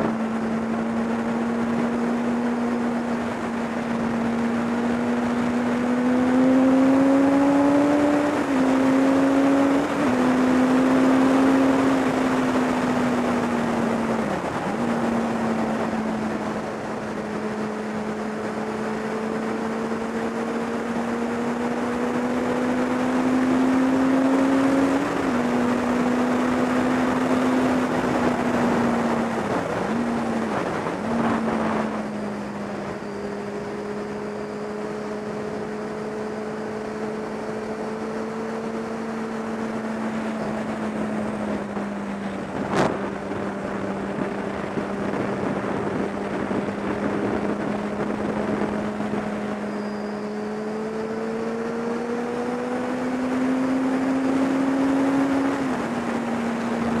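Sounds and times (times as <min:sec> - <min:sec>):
motorcycle engine cruising: 0:00.0 - 0:57.0
wind rushing over microphone: 0:00.0 - 0:57.0.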